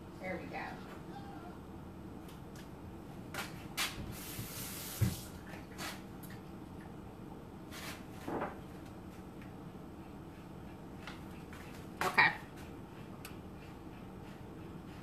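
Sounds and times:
tap water running: 0:04.1 - 0:05.4.

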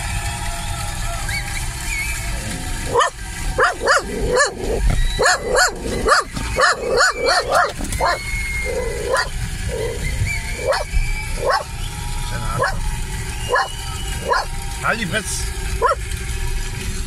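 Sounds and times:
car rumbling on road: 0:00.0 - 0:17.0
dog barking: 0:02.9 - 0:08.2, 0:08.8 - 0:09.9, 0:10.6 - 0:11.7, 0:12.6 - 0:12.8, 0:13.5 - 0:14.5, 0:15.8 - 0:16.0.

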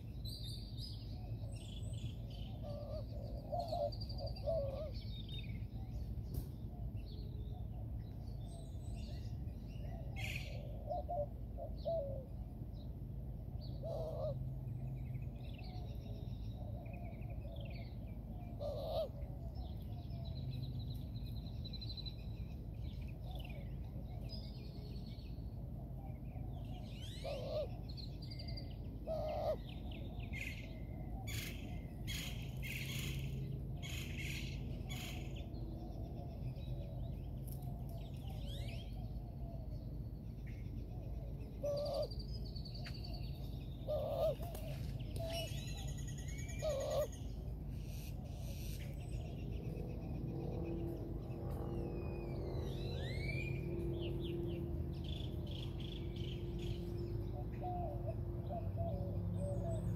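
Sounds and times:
low background hum: 0:00.0 - 0:59.9
low bird calls: 0:01.0 - 0:12.4, 0:13.6 - 0:25.2, 0:26.0 - 0:59.9
birds chirping and whistling: 0:26.4 - 0:59.9.

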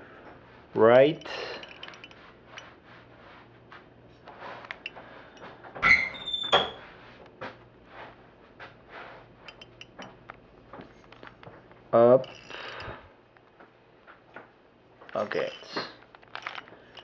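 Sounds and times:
squeaky cube turns: 0:15.3 - 0:16.7.

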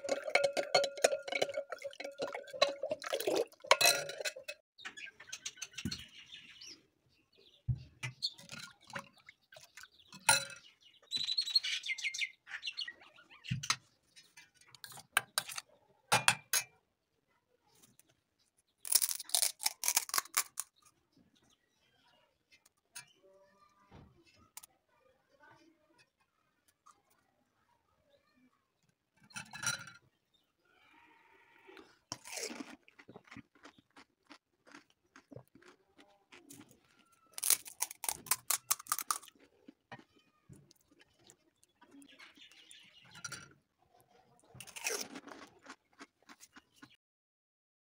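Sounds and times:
metal spoon clinking glass bowl: 0:00.0 - 0:04.6
fried puri shells crunching: 0:18.7 - 0:20.9, 0:31.8 - 0:42.7, 0:44.5 - 0:47.0
fried shell crackling: 0:18.9 - 0:20.7, 0:37.2 - 0:39.3.

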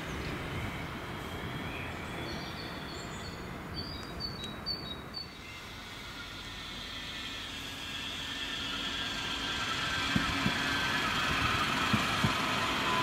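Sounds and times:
train wheels rolling on rails: 0:05.2 - 0:13.0.

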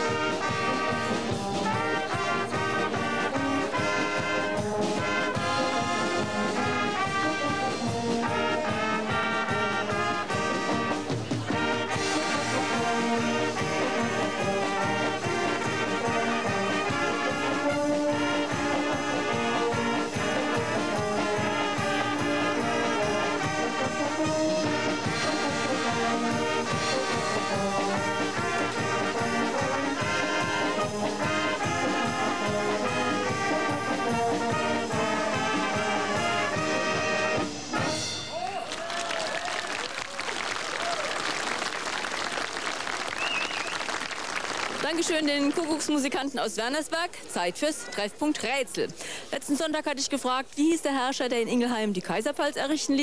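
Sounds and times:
drum kit with cymbals: 0:00.0 - 0:38.7
brass band playing a march: 0:00.0 - 0:46.1.

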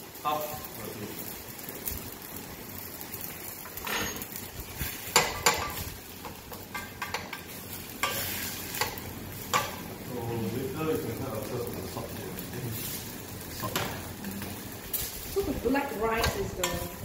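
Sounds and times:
spoon stirring rice in a pan: 0:04.8 - 0:09.8
spoon knocking on metal pan: 0:05.2 - 0:05.8.

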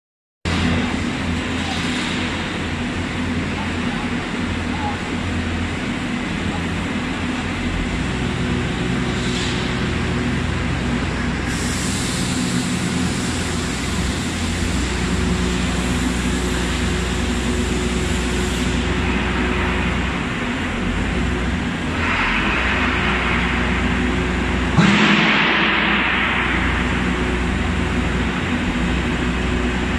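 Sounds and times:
hydraulic hiss: 0:11.4 - 0:19.0.

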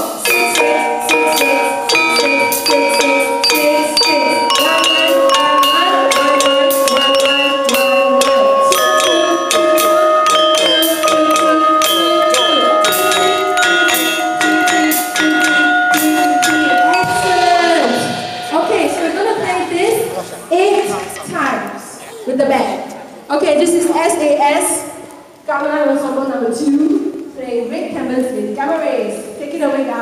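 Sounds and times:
gamelan ensemble playing: 0:00.0 - 0:21.7.

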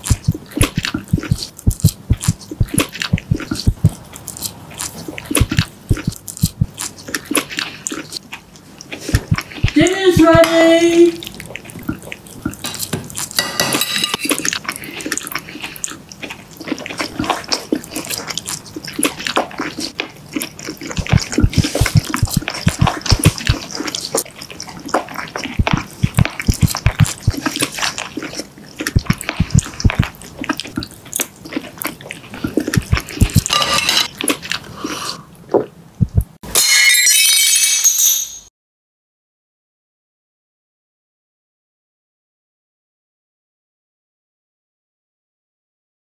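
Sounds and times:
open-mouthed chewing: 0:00.0 - 0:13.4, 0:14.0 - 0:36.4
spoon scraping ceramic bowl: 0:12.7 - 0:14.6, 0:33.2 - 0:34.2.

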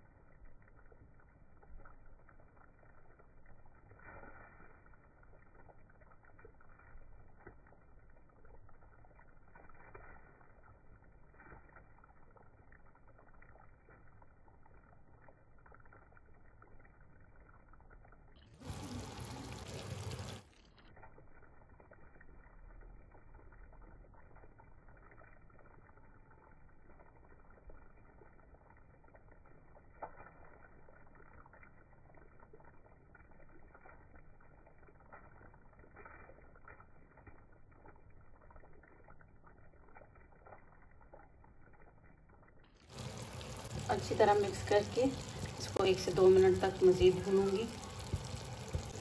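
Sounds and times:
food sizzling in a pan: 0:18.6 - 0:20.4, 0:42.9 - 0:49.0.

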